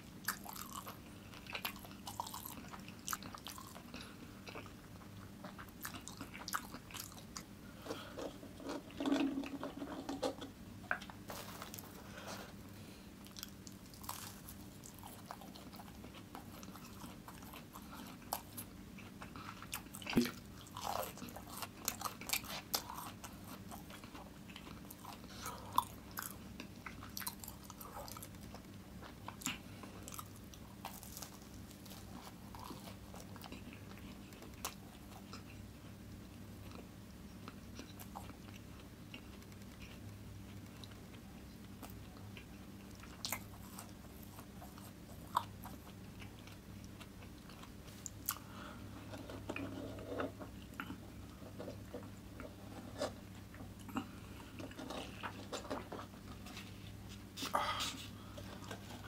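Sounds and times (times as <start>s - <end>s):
faint low hum: 0.0s - 59.0s
quiet chewing: 0.0s - 59.0s.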